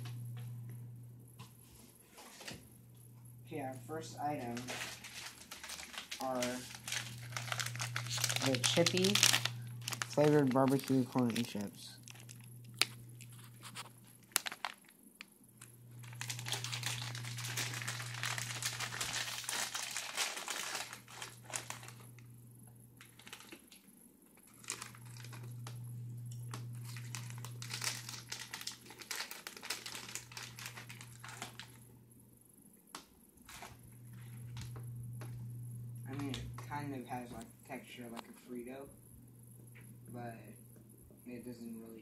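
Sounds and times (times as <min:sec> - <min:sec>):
low hum: 0:00.0 - 0:01.7, 0:02.6 - 0:23.0, 0:33.6 - 0:37.7
plastic snack bag crinkling: 0:04.1 - 0:22.2, 0:23.0 - 0:25.8, 0:26.4 - 0:31.8, 0:33.4 - 0:34.7.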